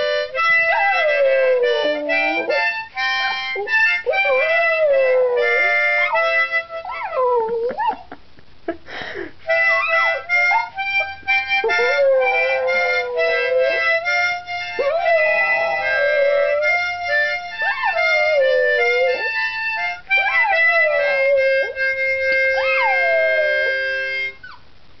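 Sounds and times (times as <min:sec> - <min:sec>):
harmonica chords: 0:00.0 - 0:07.5, 0:08.9 - 0:24.5
dog howling: 0:00.6 - 0:08.1, 0:11.6 - 0:14.1, 0:14.7 - 0:19.4, 0:20.1 - 0:24.5.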